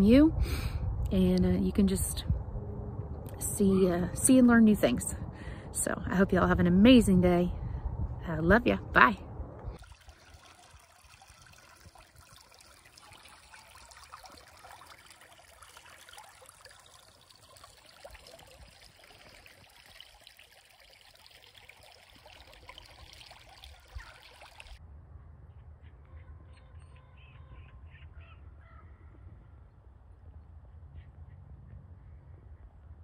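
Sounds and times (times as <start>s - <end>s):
creek water babbling: 9.7s - 24.8s.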